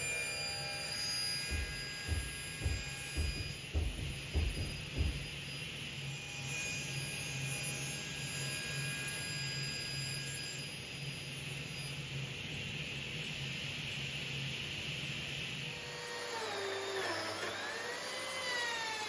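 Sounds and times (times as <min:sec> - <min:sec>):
table saw whirring: 0:00.0 - 0:11.0, 0:15.7 - 0:19.0
wood knocking: 0:01.5 - 0:05.4.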